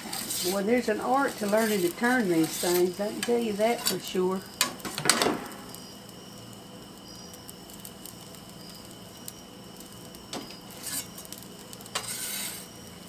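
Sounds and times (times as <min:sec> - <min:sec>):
metal peel scraping: 0:00.0 - 0:05.8, 0:10.5 - 0:12.7
gas flame hissing: 0:00.0 - 0:13.0.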